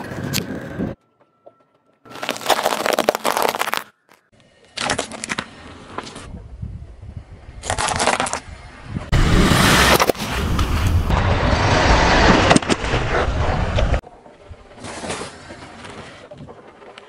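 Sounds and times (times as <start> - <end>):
tyre crushing brittle things: 2.1 - 6.2, 7.6 - 8.5.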